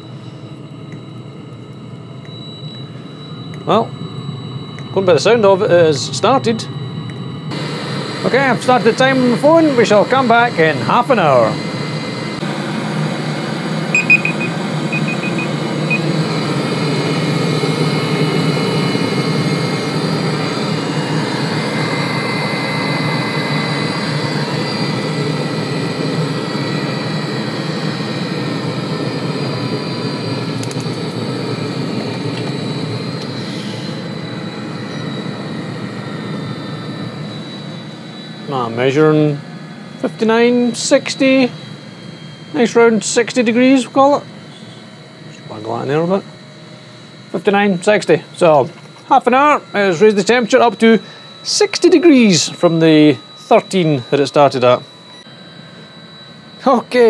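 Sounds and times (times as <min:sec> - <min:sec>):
heater burner rumble: 0:00.0 - 0:57.0
short high-pitched beeps: 0:14.0 - 0:16.1.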